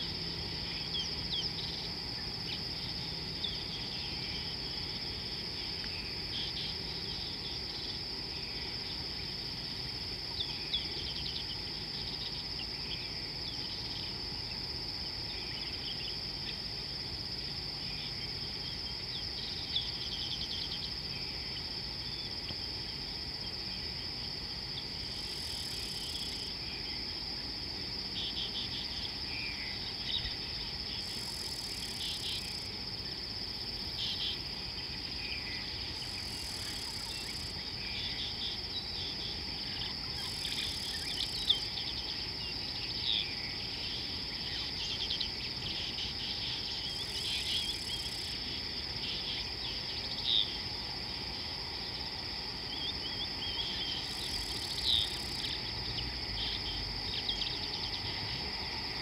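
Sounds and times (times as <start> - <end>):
shrill insect chorus: 0.0 - 59.0.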